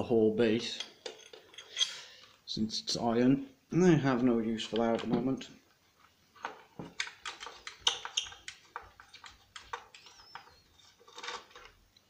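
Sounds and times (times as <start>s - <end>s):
screwdriver clicks and metal scrapes: 0.7s - 2.2s, 6.4s - 12.0s.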